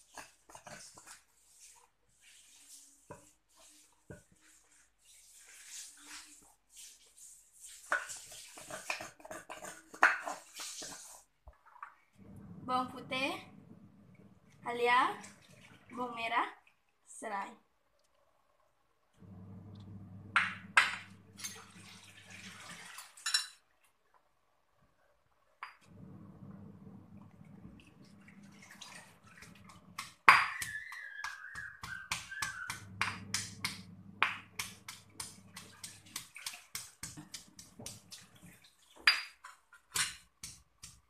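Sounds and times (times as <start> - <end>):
stone pestle pounding in mortar: 30.0 - 38.1.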